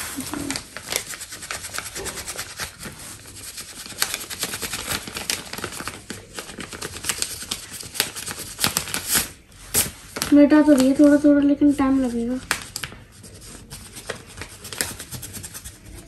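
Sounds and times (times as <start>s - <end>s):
eraser scratching on paper: 0.0s - 16.0s.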